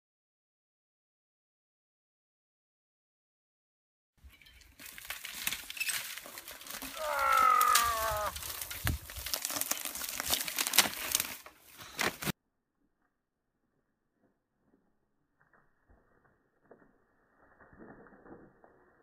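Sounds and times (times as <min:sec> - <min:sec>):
dry stalks crackling and snapping: 0:04.2 - 0:12.3
bike tyres crunching: 0:04.2 - 0:12.4
drawn-out falling pitched call: 0:06.8 - 0:08.5.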